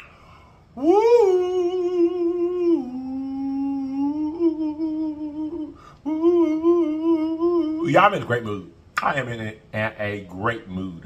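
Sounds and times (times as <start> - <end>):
man humming a slow melody: 0.7 - 8.0.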